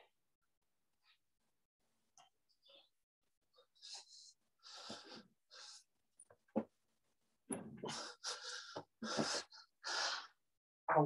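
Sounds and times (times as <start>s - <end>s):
person breathing hard: 2.6s - 5.9s, 7.8s - 10.4s.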